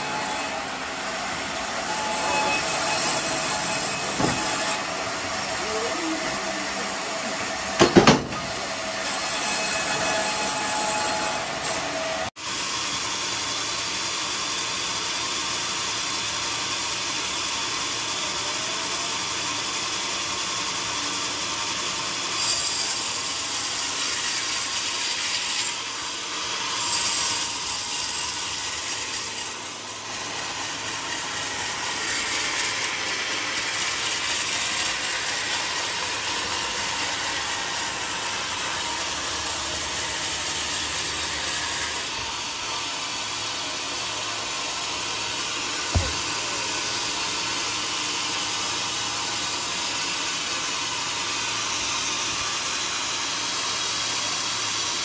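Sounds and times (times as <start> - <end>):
band sawmill machinery running: 0.0 - 55.0
sharp loud knocks: 7.8 - 8.5, 45.9 - 46.4.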